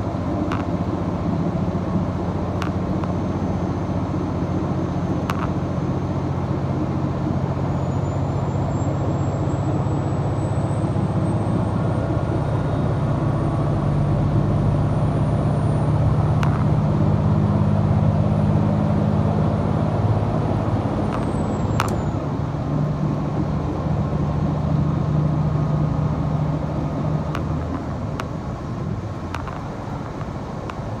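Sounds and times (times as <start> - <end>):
wheel and track noise: 0.0 - 8.0, 14.4 - 31.0
train engine drone: 0.0 - 31.0
sharp clicks: 29.3 - 31.0.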